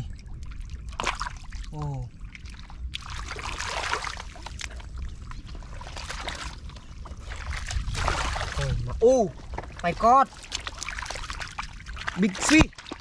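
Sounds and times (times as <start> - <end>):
hands splashing in muddy water: 2.5 - 4.8, 5.5 - 13.0.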